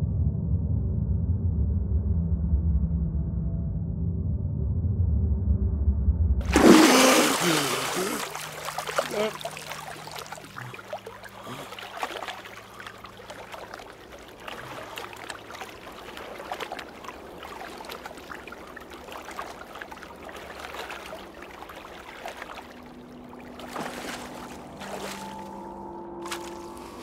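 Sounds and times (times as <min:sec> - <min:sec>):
water lapping and splashing: 0:06.4 - 0:27.0
low tone: 0:22.8 - 0:27.0.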